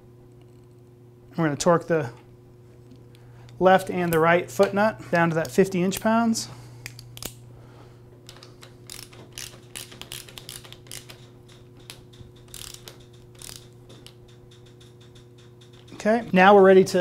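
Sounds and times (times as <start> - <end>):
torque wrench ratcheting: 8.9 - 15.9.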